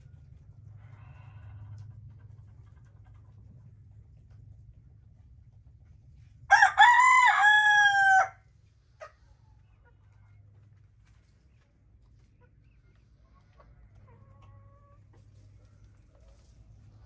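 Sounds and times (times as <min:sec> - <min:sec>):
rooster crowing: 0:06.5 - 0:08.4.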